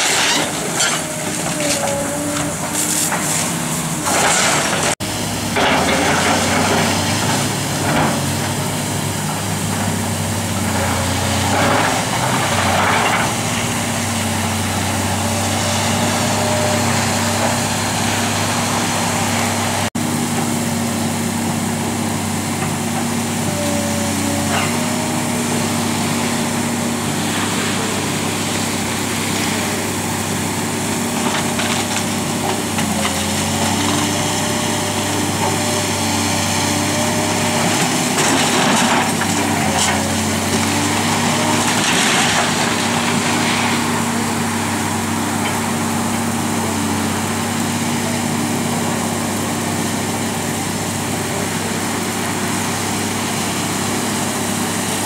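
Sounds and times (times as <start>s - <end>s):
excavator diesel engine running: 0.0s - 55.0s
wooden debris crunching and crashing: 37.0s - 45.8s.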